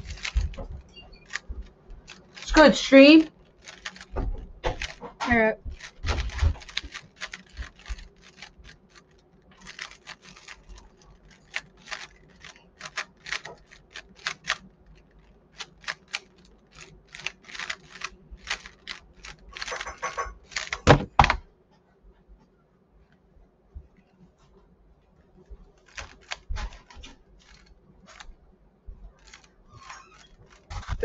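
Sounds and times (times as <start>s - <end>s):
plastic cube clicking: 0.0s - 0.7s, 3.2s - 21.4s, 25.8s - 28.3s, 29.2s - 31.0s
cube thumps set down: 20.6s - 21.4s.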